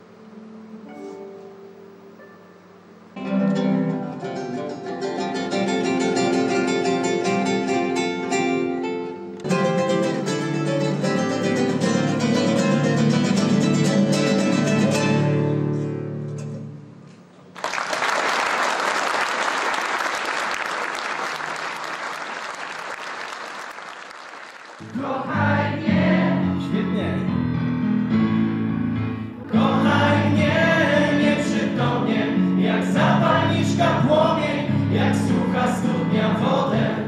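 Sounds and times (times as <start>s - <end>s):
classical guitar duet: 3.2s - 17.3s, 25.4s - 37.0s
audience applauding: 17.5s - 25.2s.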